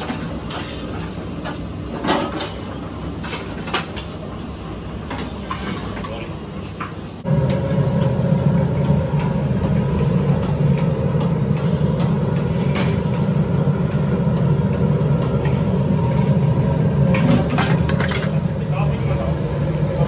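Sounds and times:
loud steady low rumble: 7.2s - 20.0s.

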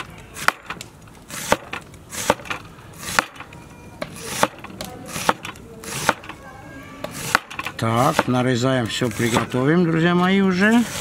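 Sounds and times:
knife slicing onion: 0.3s - 6.4s, 7.0s - 9.7s.

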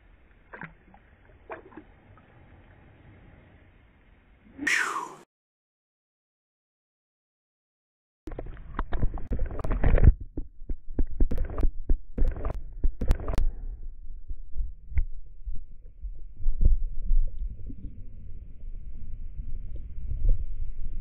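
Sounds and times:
sharp clicks and knocks: 8.3s - 13.5s
underwater thumps and rumble: 8.3s - 21.0s.

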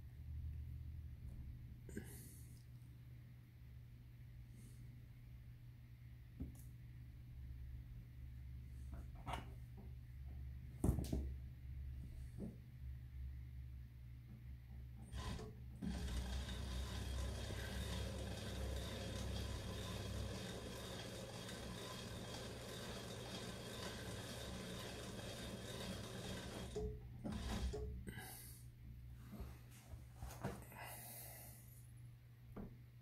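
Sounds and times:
metal lathe running: 15.1s - 27.9s.

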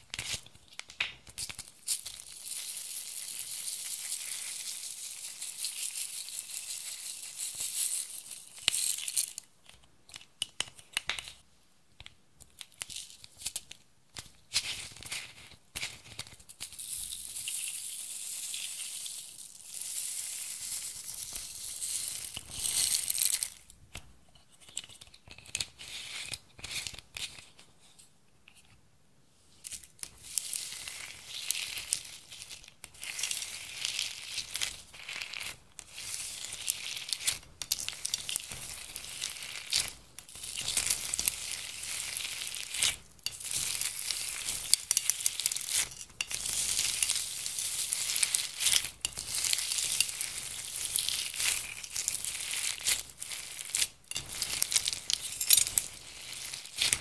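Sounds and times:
slime crinkling and squelching: 29.7s - 57.0s.

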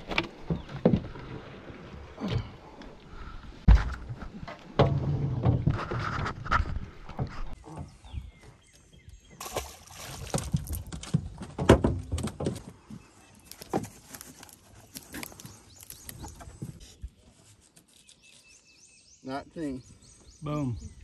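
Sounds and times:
light splashing: 9.4s - 10.8s.

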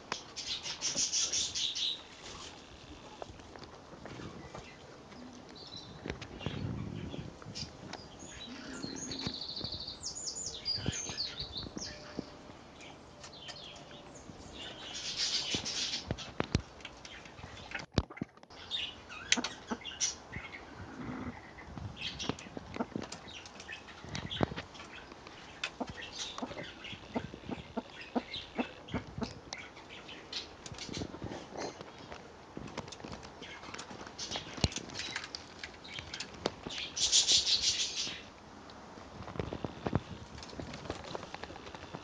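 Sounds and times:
bird chirps: 5.6s - 16.3s.

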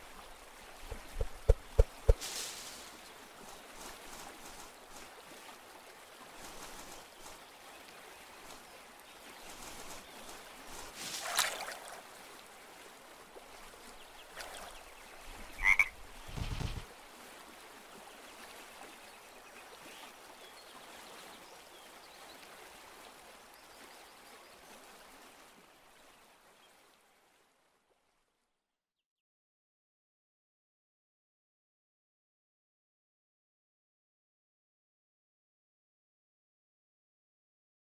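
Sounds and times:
background hiss: 0.8s - 4.6s.

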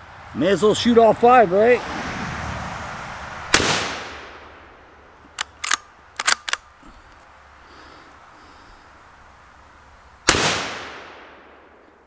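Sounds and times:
rifle shot: 3.5s - 4.7s, 10.2s - 11.8s
rifle bolt metallic clicks: 5.3s - 6.7s.

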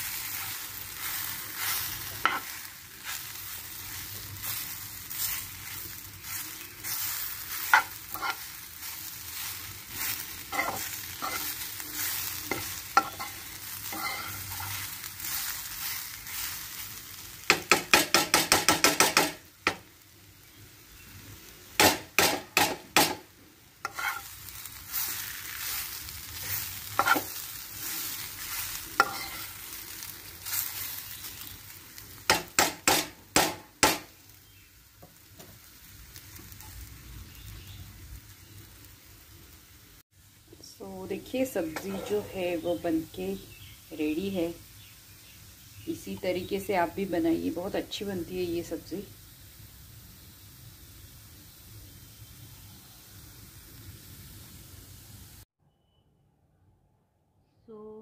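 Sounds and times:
vegetable slices sizzling in oil: 0.0s - 55.5s
metal spoon scraping a pan: 1.6s - 2.6s, 6.3s - 9.1s, 9.9s - 15.0s, 23.8s - 24.4s, 26.4s - 29.7s, 41.6s - 42.8s
spoon knocking on pan: 17.5s - 19.8s, 21.8s - 23.2s.

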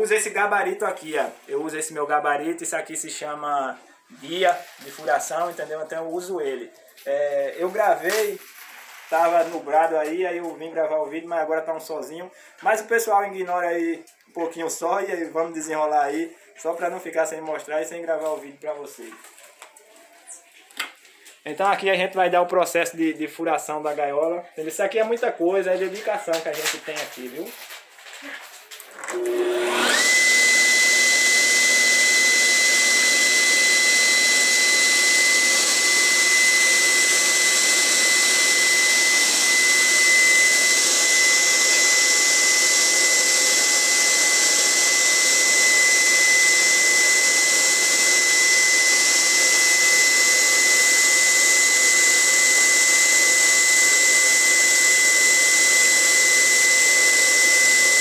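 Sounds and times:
drill motor whining: 28.9s - 58.0s.

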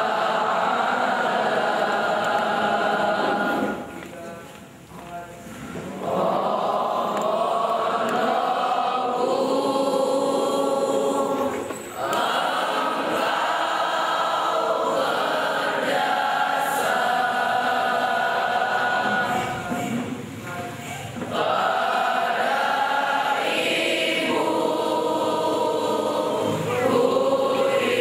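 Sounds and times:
group singing a hymn: 0.0s - 28.0s.

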